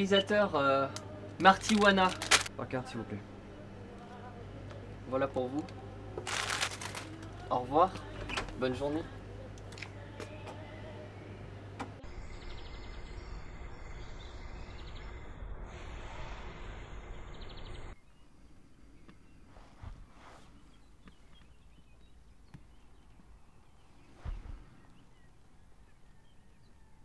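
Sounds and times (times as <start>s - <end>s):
birds chirping: 17.0s - 27.0s.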